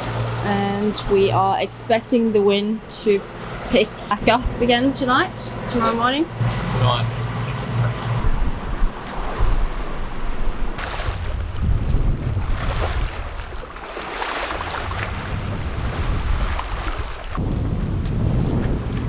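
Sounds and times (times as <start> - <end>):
sea waves rushing past boat: 0.0 - 19.0
wind buffeting microphone: 3.4 - 13.8, 14.4 - 19.0.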